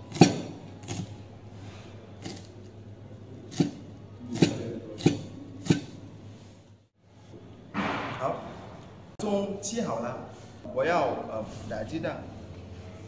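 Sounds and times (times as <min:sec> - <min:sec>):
knife chopping on cutting board: 0:00.0 - 0:01.2, 0:03.5 - 0:06.0.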